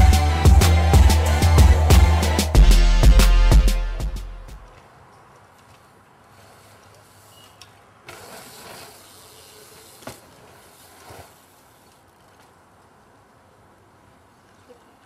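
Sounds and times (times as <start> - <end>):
bike tyres rushing on dirt: 4.7 - 14.4
bike landing knock: 10.0 - 10.4.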